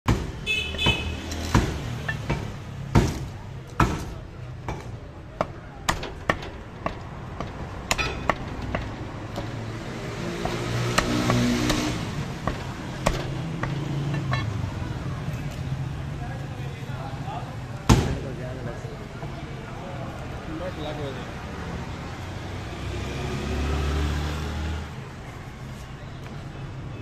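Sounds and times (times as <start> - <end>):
vehicle engine humming: 0.1 - 26.6
meat cleaver chopping on wood block: 6.8 - 13.8.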